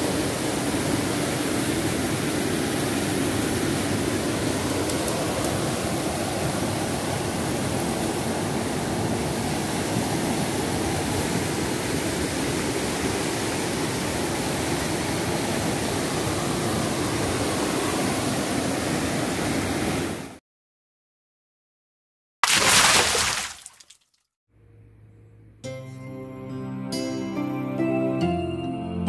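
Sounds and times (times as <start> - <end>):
water rushing over rocks: 0.0 - 19.8, 22.4 - 23.9.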